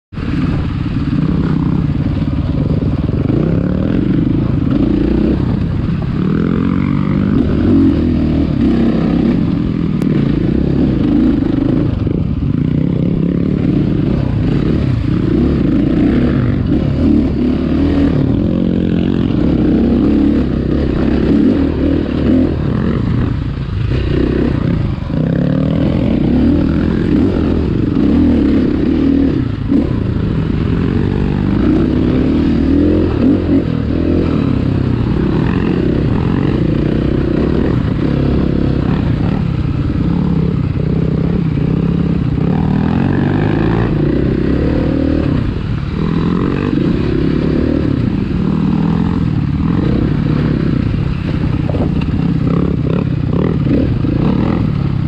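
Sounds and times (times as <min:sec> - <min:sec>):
dirt bike engine revving: 0:00.2 - 0:55.0.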